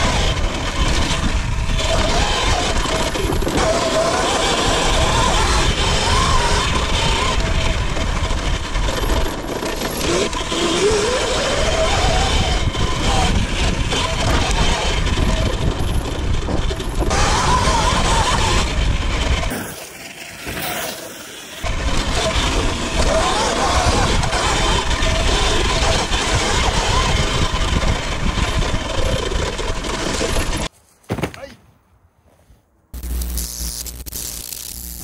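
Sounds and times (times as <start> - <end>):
wind buffeting microphone: 10.1 - 19.5, 21.7 - 30.7
electric motor whine: 33.0 - 35.0.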